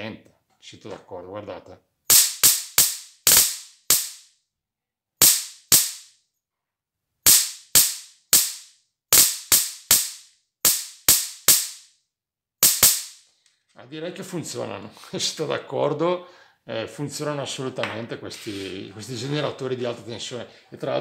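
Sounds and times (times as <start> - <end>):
electric sparks cracking: 2.1 - 4.3, 5.2 - 6.1, 7.3 - 11.9, 12.6 - 13.2.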